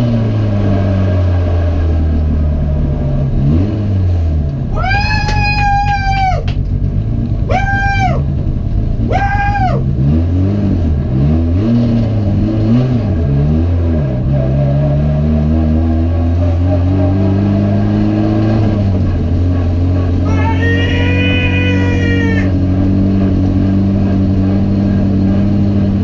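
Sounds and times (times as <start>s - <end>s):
race car engine revving: 0.0s - 26.0s
loud high-pitched squeals: 20.2s - 22.6s.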